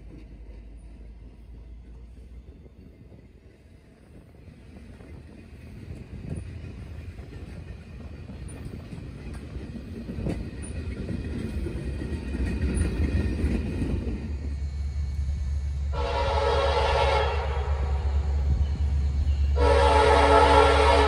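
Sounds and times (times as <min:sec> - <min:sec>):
rail car clanking: 0:00.0 - 0:21.0
tank cars rolling on rails: 0:04.8 - 0:14.7
locomotive horn chord: 0:15.9 - 0:18.6, 0:19.5 - 0:21.0.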